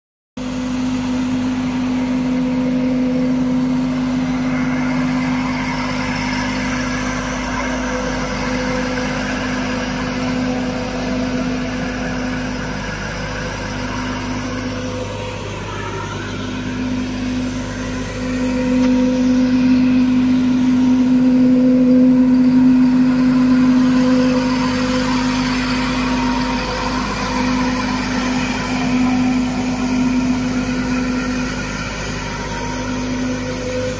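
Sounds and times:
sprayer fan humming: 0.4s - 33.9s
tractor running: 0.4s - 33.9s.

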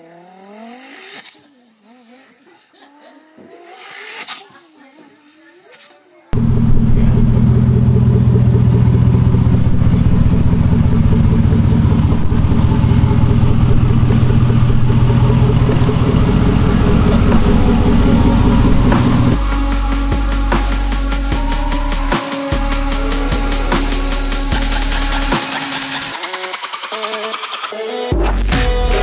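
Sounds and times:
car engine running: 6.3s - 29.0s.

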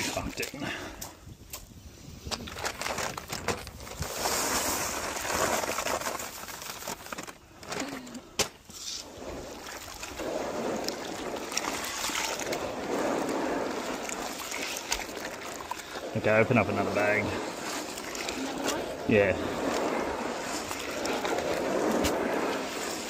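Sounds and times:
wet concrete sloshing in a tub: 8.8s - 23.0s.

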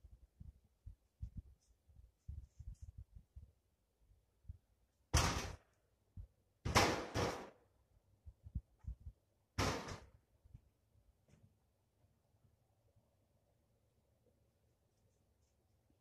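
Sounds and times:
soft low thumps: 0.0s - 3.8s, 8.2s - 9.3s.

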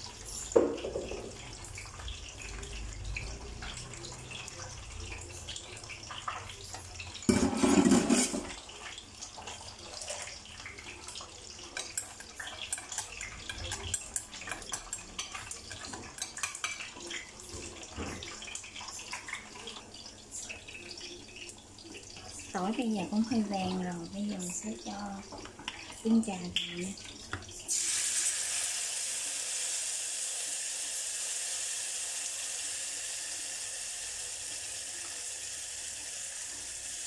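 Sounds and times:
garlic sizzling in hot oil: 0.0s - 37.0s
chopsticks stirring against pot: 6.0s - 18.3s.

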